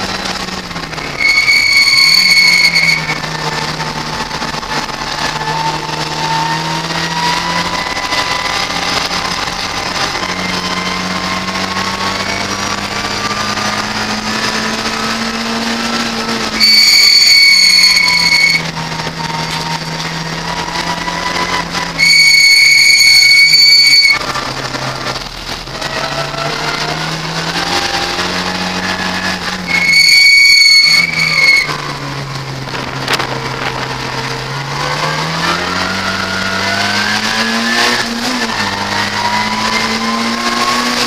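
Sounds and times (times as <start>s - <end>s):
race car engine at full throttle: 0.0s - 41.0s
high electronic beep: 16.6s - 18.6s.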